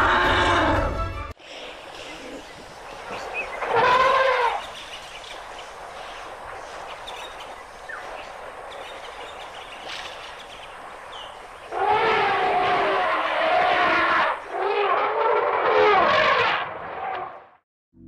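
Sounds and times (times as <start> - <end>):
elephant trumpeting: 0.0 - 1.0, 3.6 - 4.6, 11.7 - 17.3.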